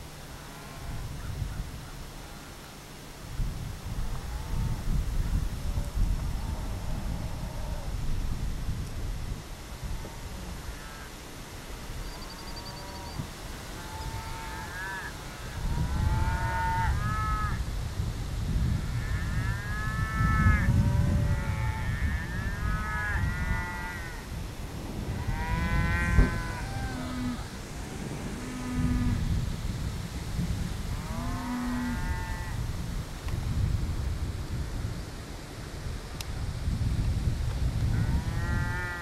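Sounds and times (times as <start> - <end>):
cows mooing: 19.0 - 24.2, 25.1 - 29.2, 30.9 - 32.6, 38.0 - 39.0.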